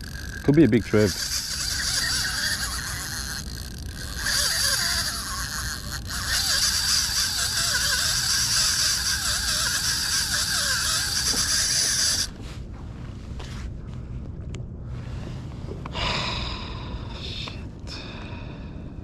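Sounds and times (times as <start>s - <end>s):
fishing reel drag buzzing: 0.0s - 12.4s.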